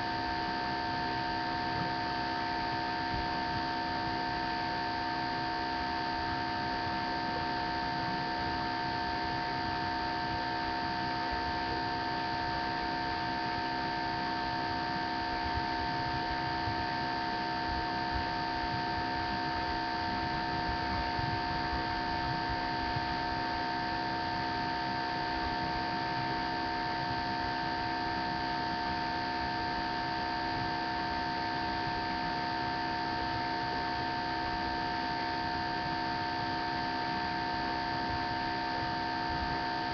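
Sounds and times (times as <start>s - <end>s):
electrical hum: 0.0s - 39.9s.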